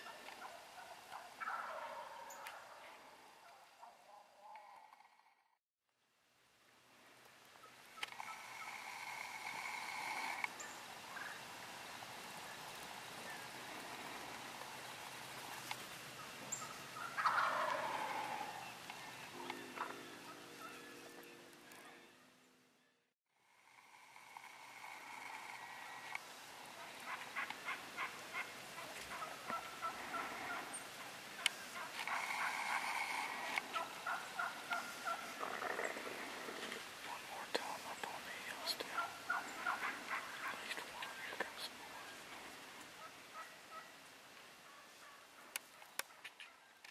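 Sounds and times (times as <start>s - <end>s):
turkey rattling gobble: 0.0s - 5.3s, 8.0s - 11.4s, 13.2s - 20.8s, 24.2s - 42.3s, 43.0s - 43.9s
turkeys yelping: 0.0s - 5.3s, 7.6s - 11.4s, 12.8s - 22.0s, 24.2s - 44.0s
soft background hiss: 0.0s - 46.9s.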